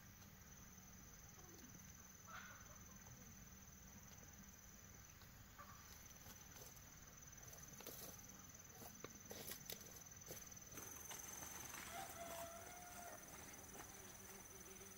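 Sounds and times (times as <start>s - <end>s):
footsteps on dry grass: 10.3s - 14.7s.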